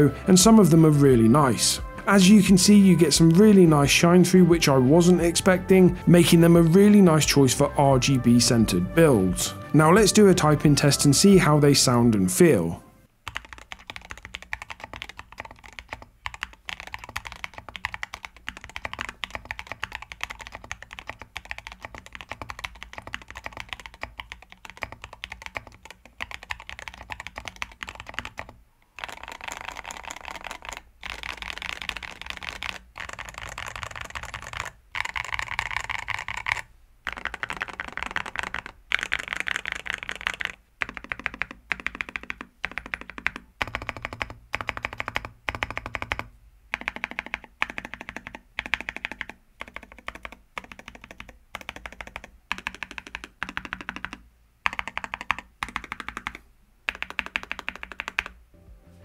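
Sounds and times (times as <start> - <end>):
typing on a mechanical keyboard: 13.2 - 58.4.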